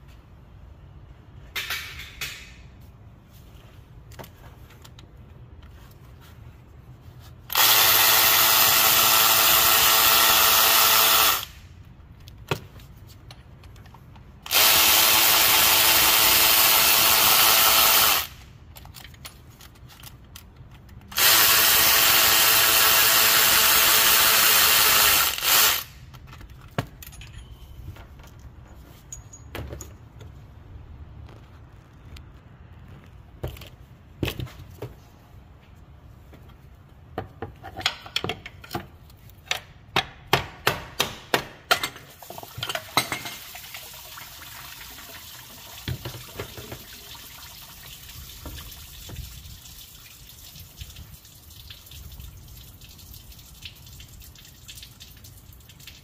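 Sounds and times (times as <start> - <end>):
cordless power tool spinning: 21.2 - 26.0
small metallic clinks: 26.9 - 30.2.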